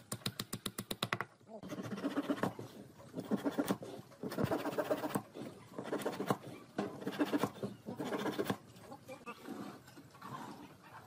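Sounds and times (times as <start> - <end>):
hand saw cutting wood: 1.7 - 8.6.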